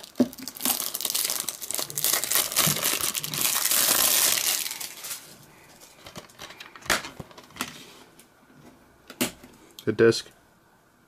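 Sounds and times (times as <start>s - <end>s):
plastic wrap crinkling: 0.0s - 7.6s.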